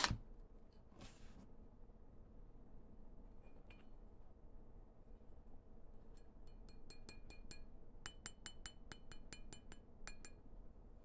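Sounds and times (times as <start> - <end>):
light ringing clinks: 6.1 - 10.5.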